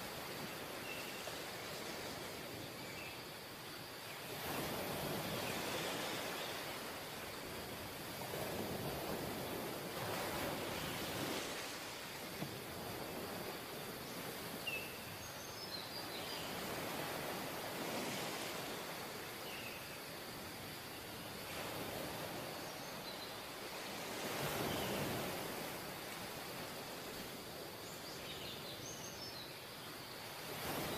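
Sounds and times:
ocean surf breaking on beach: 4.0s - 15.2s, 16.0s - 27.8s, 30.0s - 30.9s.

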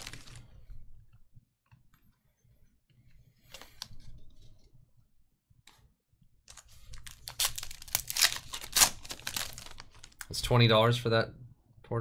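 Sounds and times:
foil wrapper tearing and crinkling: 0.0s - 0.4s, 6.9s - 10.3s.

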